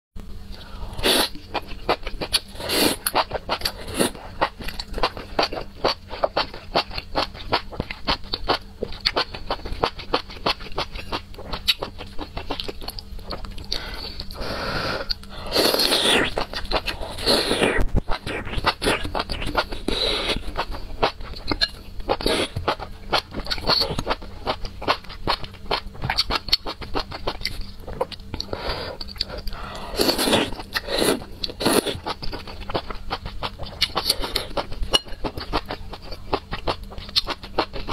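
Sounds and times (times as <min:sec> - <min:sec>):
slurping: 0:13.7 - 0:20.7
wet chewing: 0:15.0 - 0:37.9.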